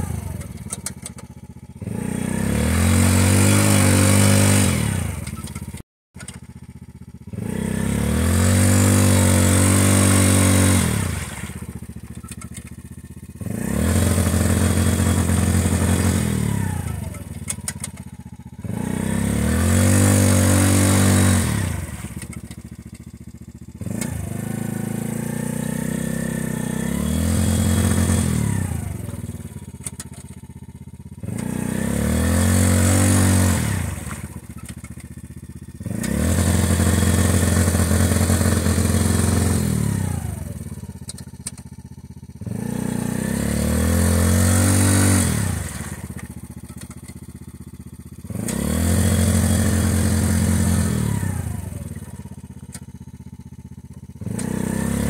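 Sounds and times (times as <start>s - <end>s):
atv engine revving: 0.0s - 55.0s.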